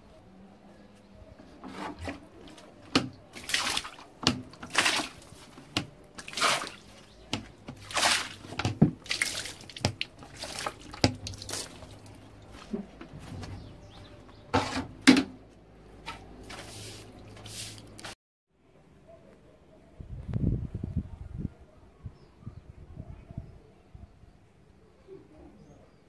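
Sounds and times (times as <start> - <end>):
water splashing on tiled floor: 2.4 - 12.5, 16.5 - 18.2.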